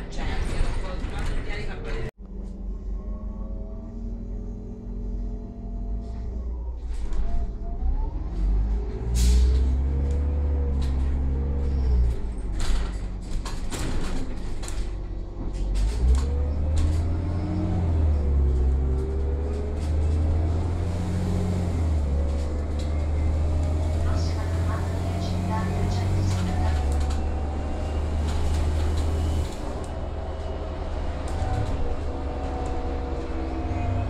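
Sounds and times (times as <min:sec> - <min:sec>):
bus engine rumble: 0:00.0 - 0:34.0
sharp clicks and rattles: 0:10.0 - 0:17.2, 0:26.2 - 0:30.0.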